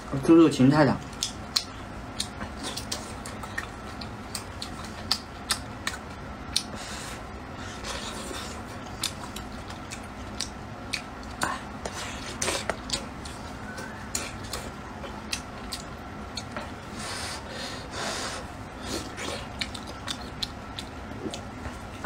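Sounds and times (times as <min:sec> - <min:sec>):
wet mouth smacks and clicks: 0:01.0 - 0:03.7
person chewing and slurping: 0:01.2 - 0:22.0.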